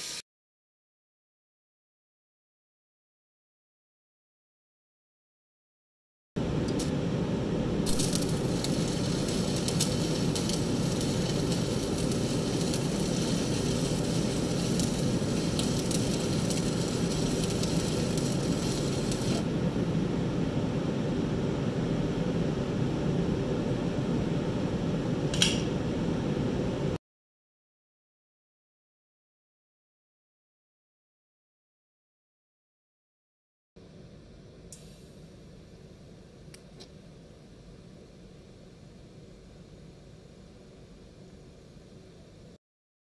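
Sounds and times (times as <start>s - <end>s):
welding arc crackling: 0.0s - 0.2s, 6.5s - 7.0s, 7.8s - 19.5s
low hum: 6.4s - 27.0s.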